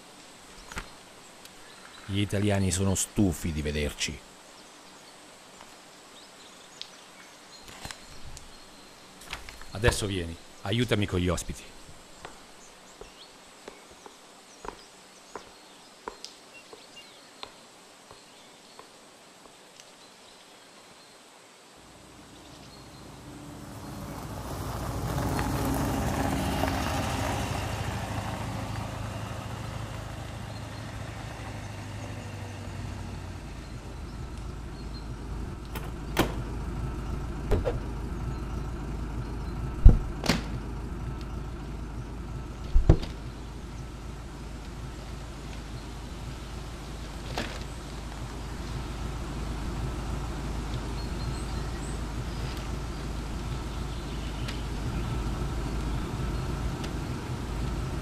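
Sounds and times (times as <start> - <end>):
car engine idling: 21.9 - 58.0
sharp knocks: 35.8 - 36.4, 37.5 - 37.9, 39.8 - 40.6, 42.8 - 43.2.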